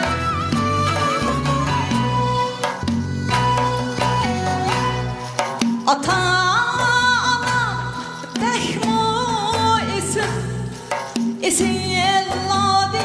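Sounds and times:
backing music with bass and drums: 0.0 - 13.0
woman singing through speakers: 5.9 - 13.0.

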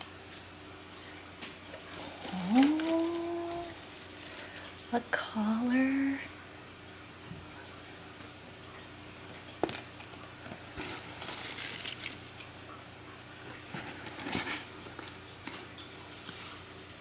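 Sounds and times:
paper shred rustling: 1.9 - 4.7, 10.7 - 12.3.

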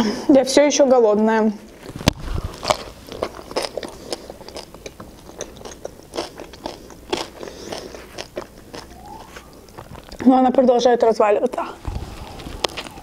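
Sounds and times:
close-up chewing: 1.8 - 10.2.

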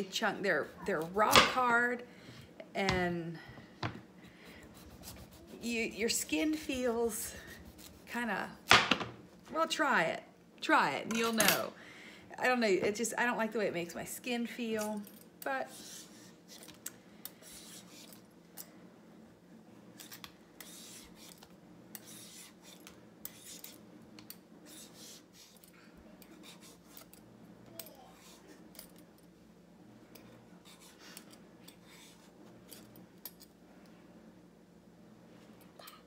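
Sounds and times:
vegetable peeler scraping squash: 4.8 - 6.6.

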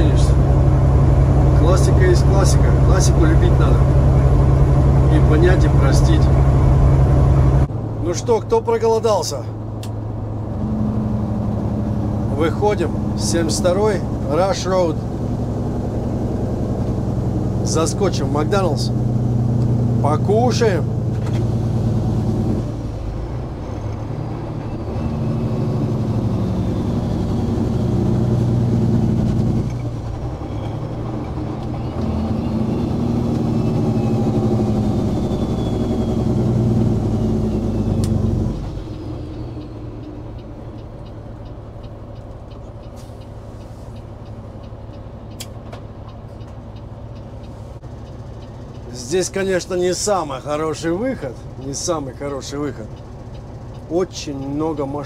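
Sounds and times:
diesel truck engine running: 0.0 - 55.0
truck engine idling: 0.0 - 55.0
sharp clicks: 44.6 - 46.6.

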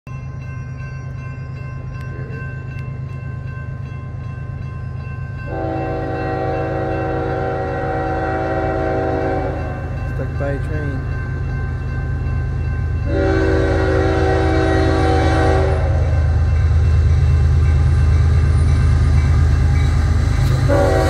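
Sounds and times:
railroad crossing bell ringing: 0.1 - 21.0
locomotive air horn blast: 5.5 - 9.8, 13.1 - 16.4, 20.5 - 21.0.

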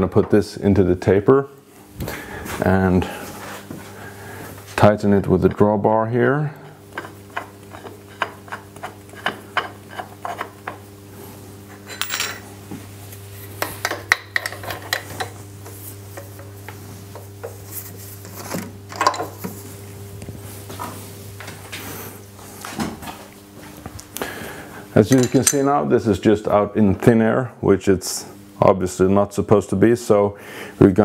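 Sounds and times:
steady low hum: 0.0 - 31.0
metal clicking and clinking: 25.1 - 25.7.

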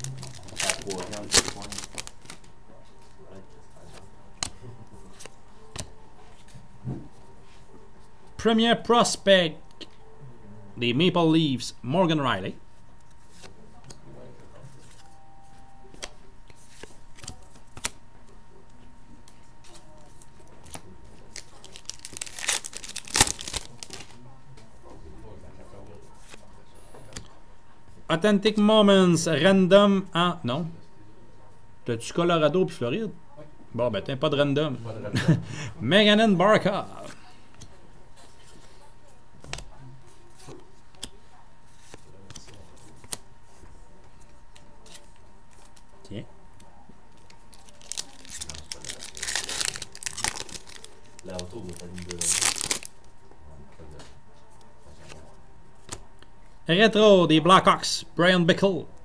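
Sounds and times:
foil wrapper ripping open: 0.0 - 2.4, 21.3 - 24.2, 47.5 - 53.0
soft rustling of cards: 0.0 - 8.3, 12.8 - 24.2, 36.9 - 46.0, 46.6 - 53.2.

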